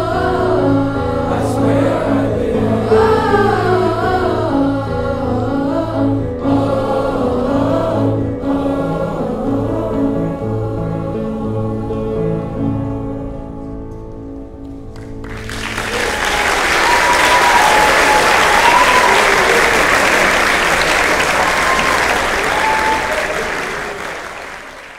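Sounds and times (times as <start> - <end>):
choir singing held chord: 0.0 - 13.9, 15.4 - 24.8
audience applause: 15.0 - 24.9
audience cheering: 15.2 - 24.9.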